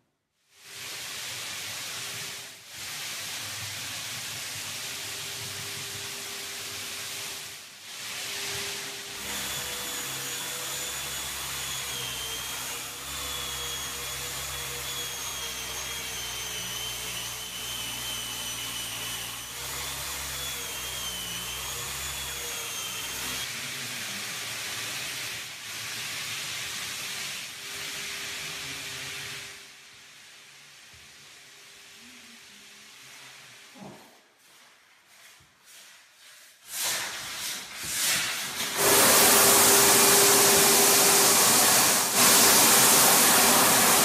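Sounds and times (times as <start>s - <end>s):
dust extractor rushing: 38.6s - 44.0s.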